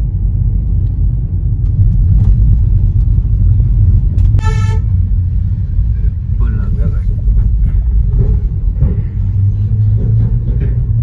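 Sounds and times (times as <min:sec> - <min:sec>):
car engine and tyres rumbling: 0:00.0 - 0:11.0
car horn honk: 0:04.4 - 0:05.0.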